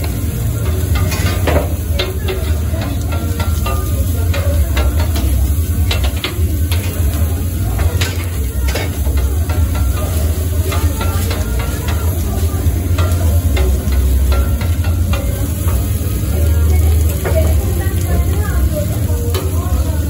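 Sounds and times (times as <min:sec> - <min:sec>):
meat sizzling: 0:00.0 - 0:20.0
knife tapping on steel griddle: 0:00.6 - 0:07.2, 0:07.8 - 0:12.2, 0:12.9 - 0:15.8.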